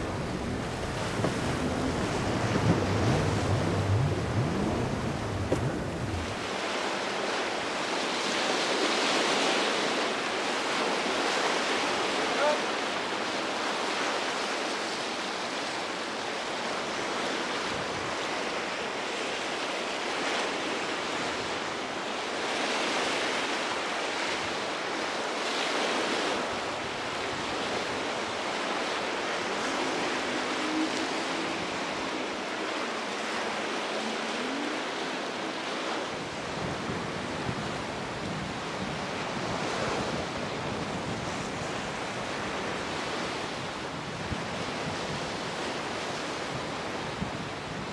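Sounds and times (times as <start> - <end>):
wind gusting on microphone: 0.0 - 6.7, 26.2 - 47.9
sea waves breaking: 0.0 - 47.9.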